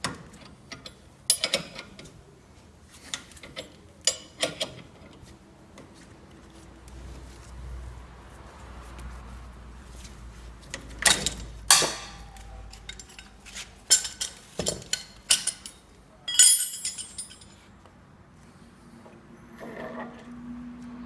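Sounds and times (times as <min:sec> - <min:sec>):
metallic jingle: 0:15.3 - 0:17.6.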